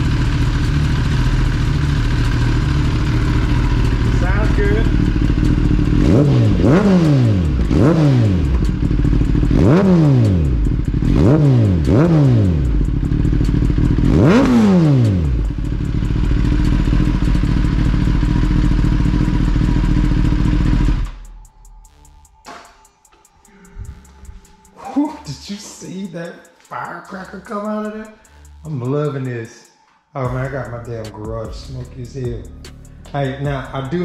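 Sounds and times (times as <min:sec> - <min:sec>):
motorcycle engine revving and idling: 0:00.0 - 0:22.0, 0:30.2 - 0:34.0.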